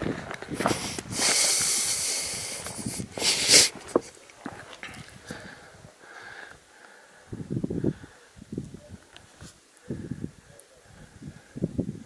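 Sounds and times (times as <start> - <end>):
person breathing heavily: 0.6 - 4.0, 5.2 - 8.4.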